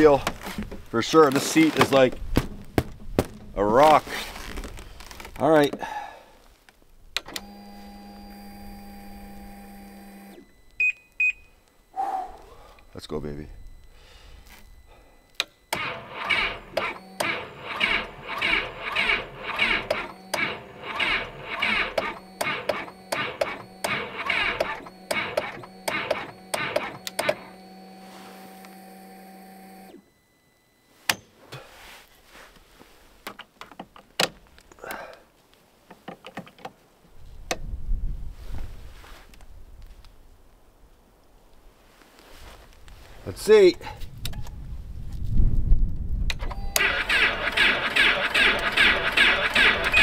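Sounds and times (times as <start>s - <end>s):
steady hum: 7.4s - 33.2s
engine cranking slowly: 15.4s - 27.6s, 46.8s - 50.0s.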